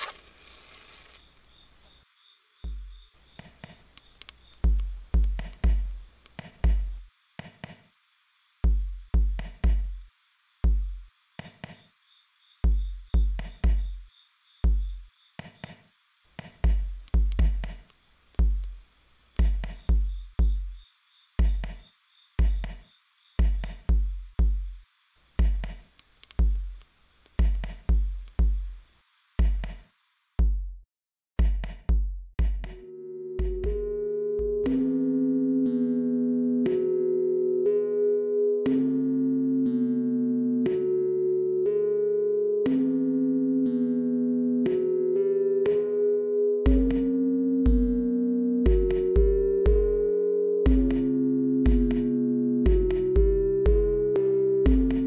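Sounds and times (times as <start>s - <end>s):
steady hiss: 0.0s - 13.1s, 13.9s - 30.4s
synthesized kick drums: 2.7s - 3.8s, 4.6s - 7.8s, 8.6s - 11.8s, 12.6s - 15.8s, 16.4s - 18.8s, 19.4s - 20.8s, 21.4s - 24.8s, 25.4s - 26.8s, 27.4s - 28.8s, 29.4s - 30.8s, 31.4s - 35.0s, 46.7s - 47.1s, 47.7s - 55.0s.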